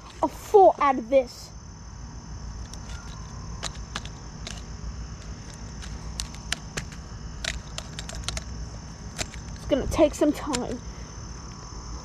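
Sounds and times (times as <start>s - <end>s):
crickets chirping: 0.0s - 12.0s
pruning shears clicking: 2.6s - 9.8s.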